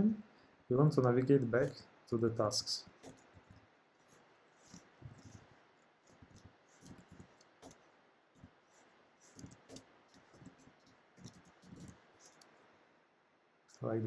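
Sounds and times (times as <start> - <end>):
faint keyboard typing: 0.9 - 7.8, 8.4 - 12.6.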